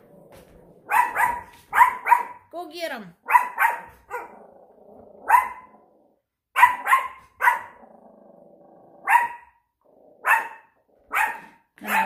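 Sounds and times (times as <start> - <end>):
dog growling: 0.0 - 0.9, 4.0 - 6.4, 7.6 - 12.0
small dogs barking: 0.8 - 2.5, 3.2 - 4.6, 5.2 - 5.9, 6.5 - 7.9, 9.0 - 9.6, 10.2 - 12.0.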